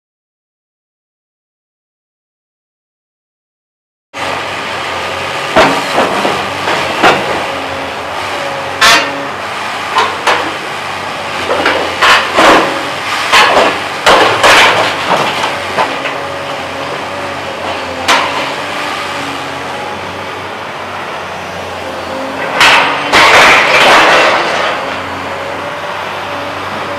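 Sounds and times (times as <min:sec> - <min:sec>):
excavator diesel engine running: 0:04.2 - 0:26.9
crashes of breaking debris: 0:05.5 - 0:07.6, 0:08.2 - 0:19.0, 0:22.4 - 0:25.1.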